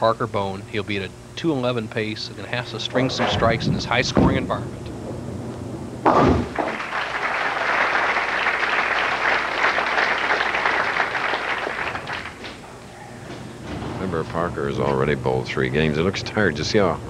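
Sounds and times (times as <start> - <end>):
bowling ball crashing into pins: 2.8 - 7.6
crowd applause: 6.4 - 13.4.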